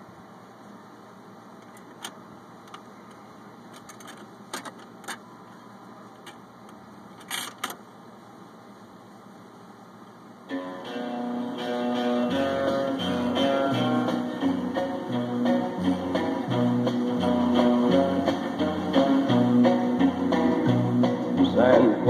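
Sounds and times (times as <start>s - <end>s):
record player motor hum: 0.0s - 22.0s
mechanical clicks and clunks: 1.6s - 5.2s, 6.2s - 7.8s.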